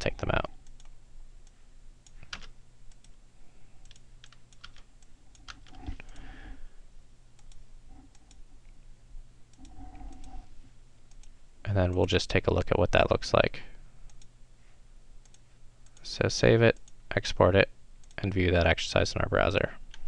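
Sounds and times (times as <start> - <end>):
faint steady hum: 0.0 - 20.0
keyboard key presses: 2.3 - 2.5.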